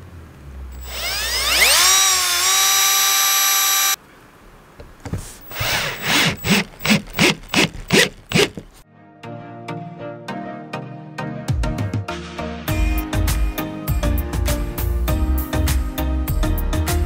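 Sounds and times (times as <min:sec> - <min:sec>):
cordless drill whining: 0:00.8 - 0:04.0, 0:05.4 - 0:08.8
drill driving screw in bursts: 0:00.8 - 0:04.0, 0:05.4 - 0:08.8.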